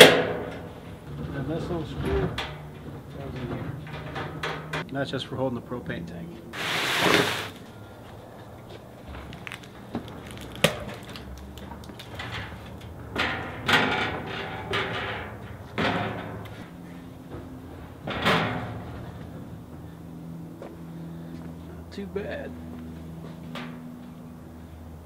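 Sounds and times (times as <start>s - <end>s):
metal cabinet bumping and scraping: 13.1s - 16.6s.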